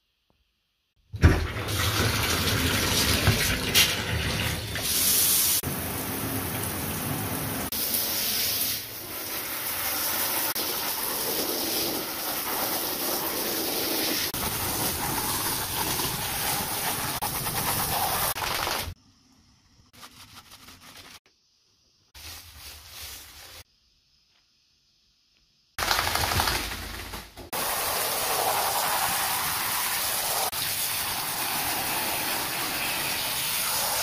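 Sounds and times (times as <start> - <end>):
shower head spraying water: 27.5 - 34.0.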